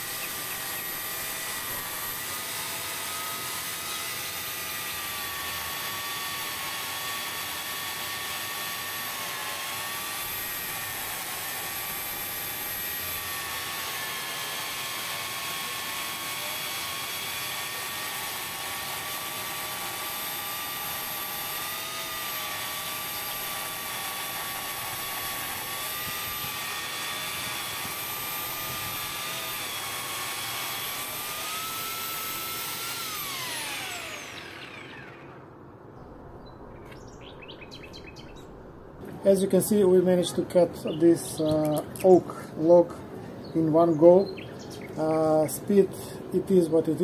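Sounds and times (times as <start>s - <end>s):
electric chainsaw cutting log: 0.0s - 35.6s.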